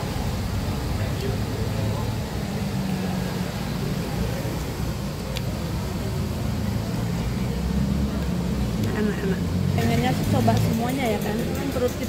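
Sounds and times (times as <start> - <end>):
faint indistinct voices: 0.0 - 12.0
road traffic rumble: 0.0 - 12.0.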